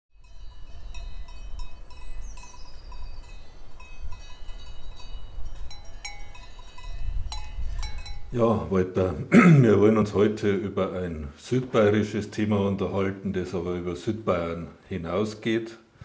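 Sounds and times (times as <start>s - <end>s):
cowbells clanking: 0.2s - 8.7s.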